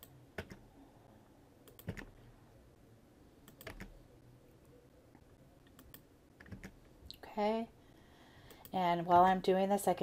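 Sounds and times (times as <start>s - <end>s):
computer mouse clicks: 0.0s - 0.6s, 1.6s - 2.2s, 3.4s - 4.0s, 5.6s - 7.2s, 8.5s - 8.8s.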